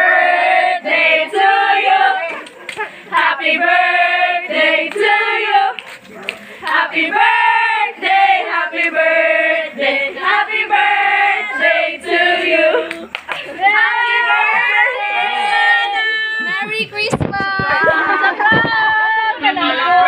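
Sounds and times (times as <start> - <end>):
women singing together: 0.0 - 5.9, 6.6 - 16.6.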